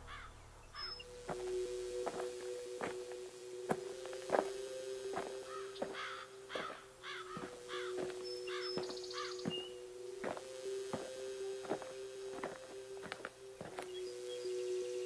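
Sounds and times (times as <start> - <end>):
bird cawing: 0.0 - 1.1, 5.4 - 9.9
steady low hum: 0.0 - 15.0.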